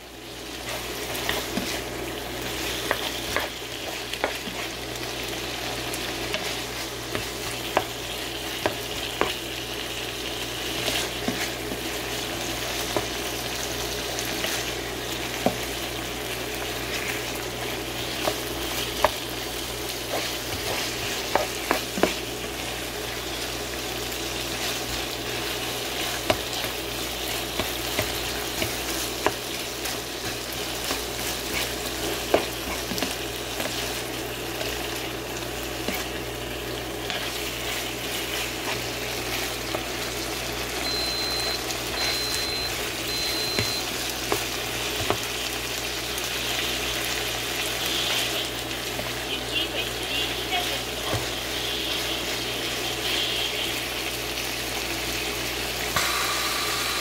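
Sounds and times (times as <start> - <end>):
food sizzling in a pan: 0.0 - 57.0
spatula knocking and scraping pan: 2.6 - 4.7, 20.0 - 22.3, 27.3 - 33.9.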